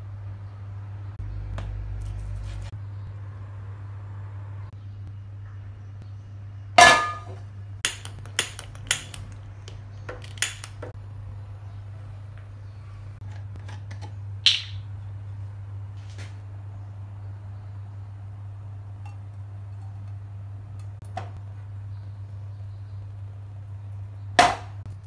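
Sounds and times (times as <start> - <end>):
steady low hum: 0.0 - 25.0
gas burner igniter clicks: 7.8 - 9.4, 10.2 - 10.8.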